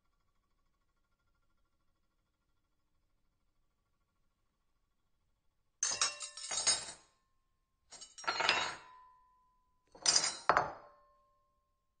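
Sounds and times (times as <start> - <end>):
silverware clinking on plate: 5.8 - 7.0, 7.9 - 9.1, 10.0 - 11.0.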